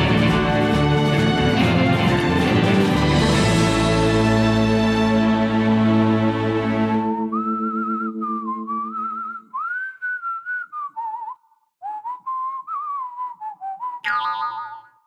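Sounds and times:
whistled tune: 6.8 - 15.0.

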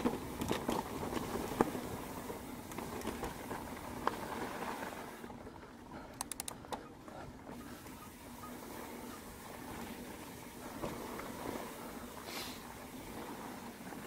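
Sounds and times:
bike knocking and rattling: 0.0 - 14.0
bike tyres on dirt: 0.0 - 14.0
sharp clicks: 6.2 - 6.8.

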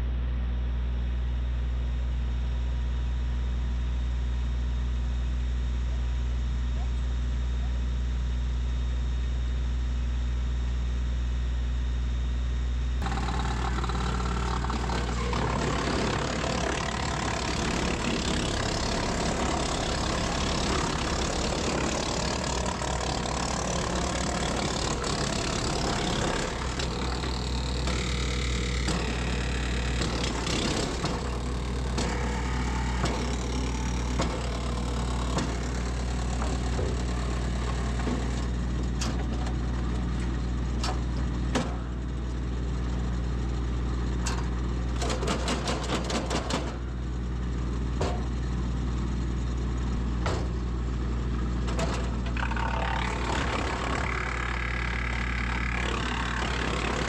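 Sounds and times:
engine hum: 12.9 - 57.0
wood chipper grinding wood: 13.0 - 57.0.

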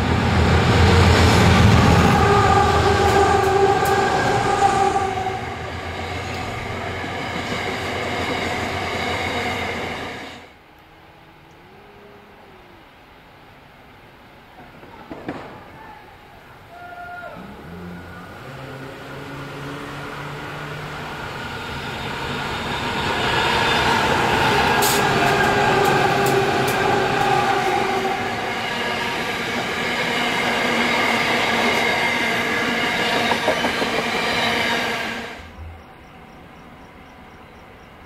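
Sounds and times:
train wheels rumbling: 0.0 - 10.5, 17.2 - 38.0
locomotive engine drone: 17.4 - 38.0.

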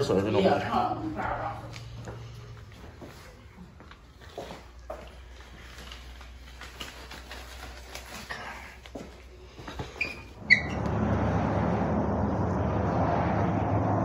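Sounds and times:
outdoor vehicle rumble: 0.0 - 4.2, 10.2 - 14.0
low hum: 10.4 - 14.0.

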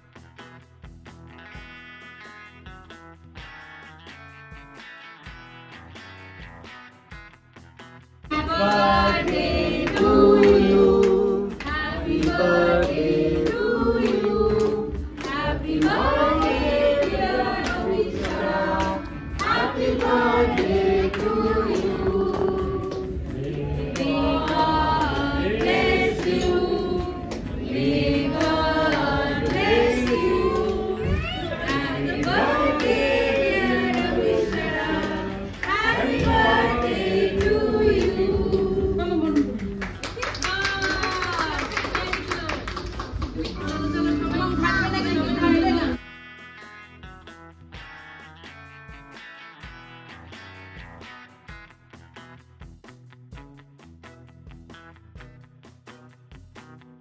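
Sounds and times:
women and children singing: 8.3 - 39.6, 43.6 - 46.0
clapping in time: 39.2 - 44.0.

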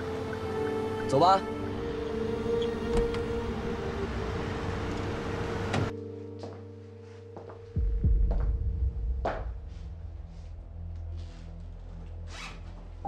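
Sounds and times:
zipper being pulled: 12.3 - 12.8.

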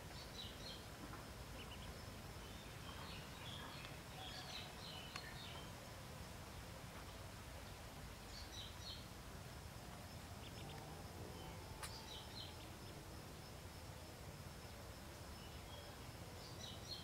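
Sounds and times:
outdoor background hiss: 0.0 - 17.0
ducklings peeping: 1.6 - 1.9, 10.4 - 10.7.

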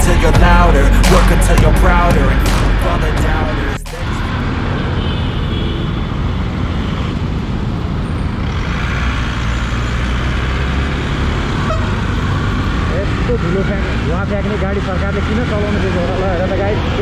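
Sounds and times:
motorcycle engine and road noise: 0.0 - 17.0
vehicle horns honking: 3.9 - 7.1, 11.6 - 12.6.

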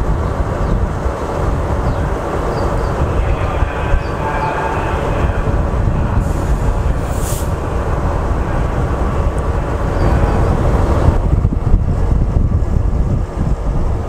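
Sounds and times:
diesel locomotive idling: 0.0 - 14.0
brief hiss: 7.1 - 7.5.

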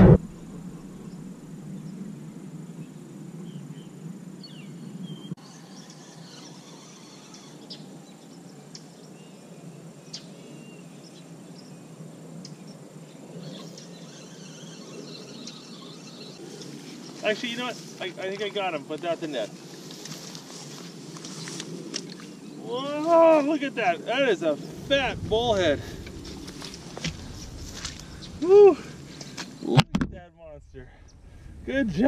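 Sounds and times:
faint low rush: 0.0 - 5.1, 23.8 - 32.0
insect drone: 0.0 - 29.8, 30.5 - 32.0
bird chirps: 13.4 - 18.1.

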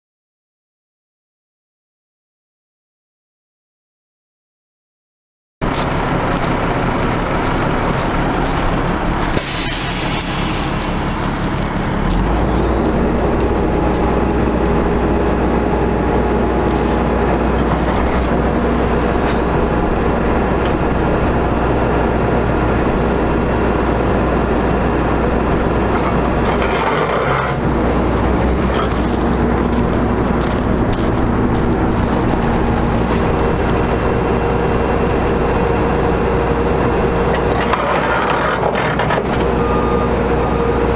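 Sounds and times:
diesel engine running: 5.6 - 40.9
air hiss: 9.4 - 11.1.

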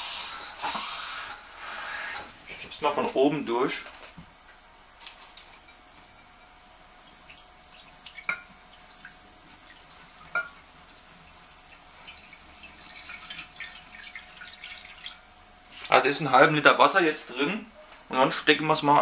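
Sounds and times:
water trickling and dripping: 7.0 - 15.9.

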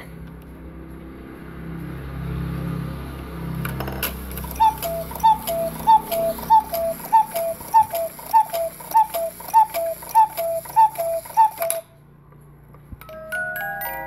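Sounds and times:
cuckoo clock calling: 4.1 - 11.9.

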